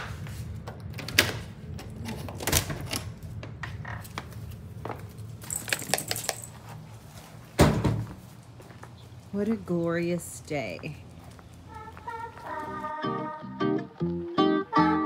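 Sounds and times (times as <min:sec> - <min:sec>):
metallic jingle: 0:05.4 - 0:06.7.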